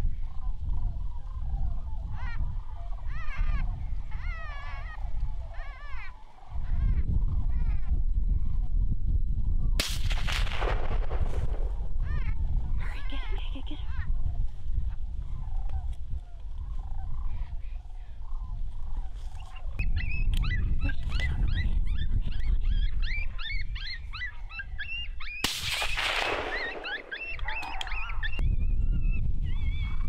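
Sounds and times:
coyotes yipping and howling: 0.0s - 8.7s, 11.2s - 30.0s.

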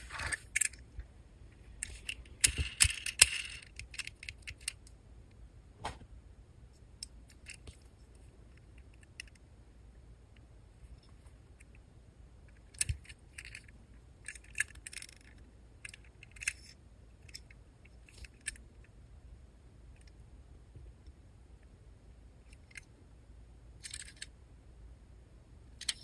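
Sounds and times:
fingers handling toy truck: 0.0s - 4.9s, 7.0s - 9.4s, 12.5s - 18.9s, 23.8s - 24.4s, 25.7s - 26.0s.

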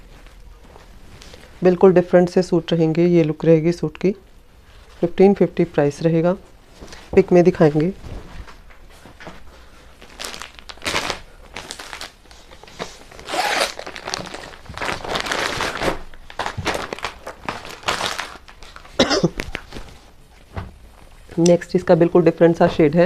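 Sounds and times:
plastic packets crinkling: 9.9s - 20.0s.

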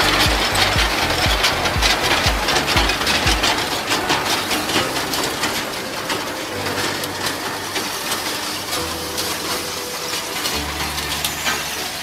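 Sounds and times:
hay rake rattling clatter: 0.0s - 12.0s
machinery noise: 0.0s - 12.0s.

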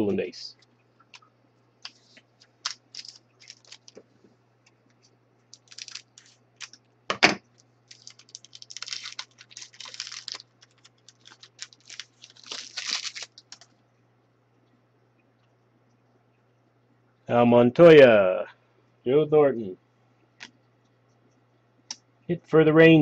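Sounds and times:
wrapper crinkling and tearing: 1.8s - 4.0s, 5.5s - 6.9s, 7.5s - 13.8s.

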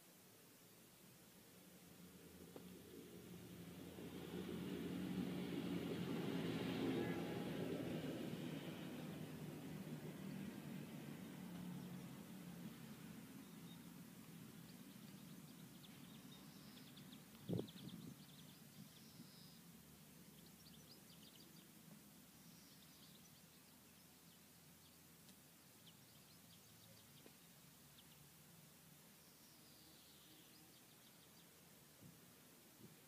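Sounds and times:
small birds chirping: 9.8s - 32.1s.

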